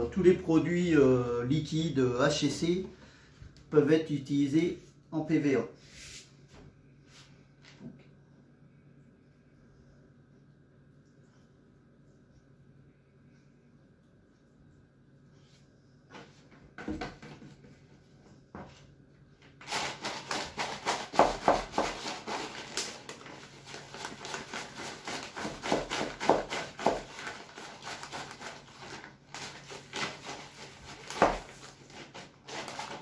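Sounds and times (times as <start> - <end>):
plastic bag of seeds crinkling: 21.9 - 25.4, 27.0 - 33.0.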